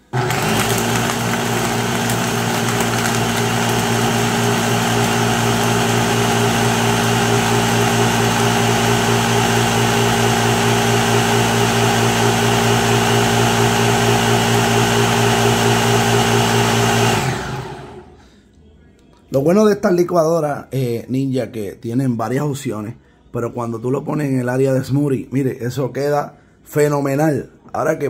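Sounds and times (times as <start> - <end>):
blender motor humming: 0.0 - 18.2.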